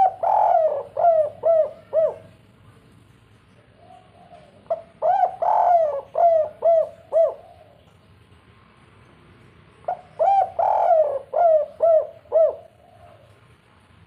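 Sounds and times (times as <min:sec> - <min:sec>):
dove cooing: 0:00.0 - 0:02.5, 0:03.7 - 0:07.9, 0:09.9 - 0:13.5.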